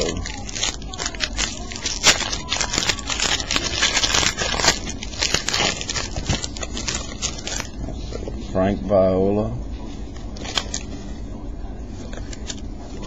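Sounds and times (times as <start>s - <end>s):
wrapper tearing and crinkling: 0.0s - 7.8s, 10.4s - 10.9s.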